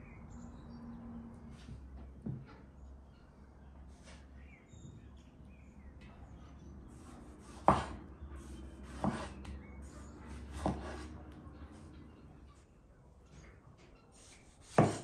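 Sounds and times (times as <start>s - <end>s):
knife strokes on wooden board: 6.9s - 11.2s, 14.2s - 15.0s.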